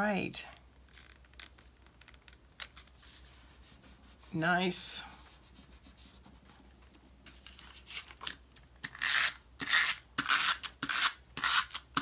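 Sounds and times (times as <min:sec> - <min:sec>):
tape runner strokes on paper: 0:02.7 - 0:08.3.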